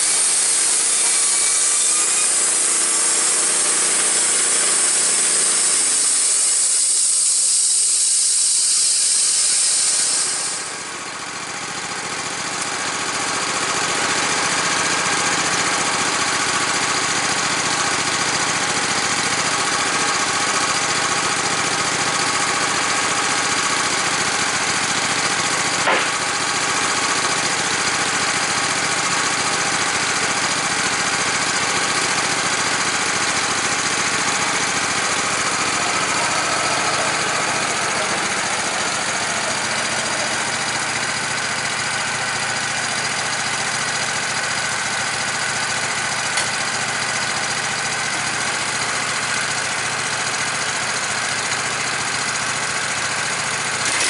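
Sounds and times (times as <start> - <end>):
band saw cutting log: 0.0 - 43.9, 45.8 - 48.0, 53.5 - 54.0
petrol engine running: 0.0 - 54.0
sharp click: 25.8 - 26.3, 46.4 - 46.6.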